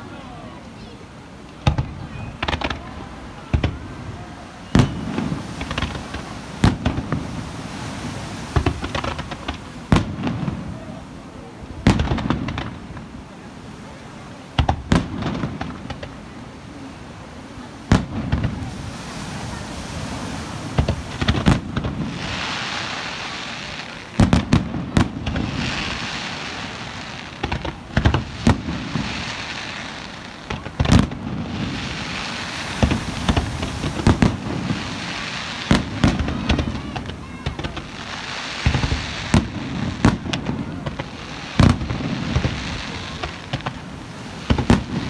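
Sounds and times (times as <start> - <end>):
crackling hiss of fireworks: 0.0 - 45.0
firework shells bursting: 24.2 - 38.0.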